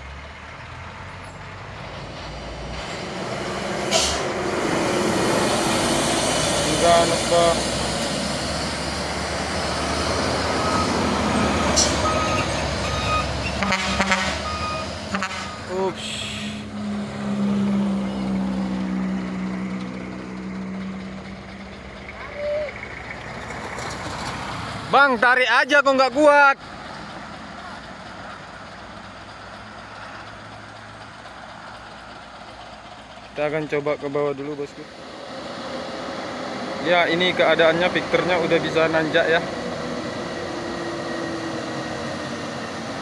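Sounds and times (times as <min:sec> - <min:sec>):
diesel truck engine climbing hill: 0:00.0 - 0:43.0.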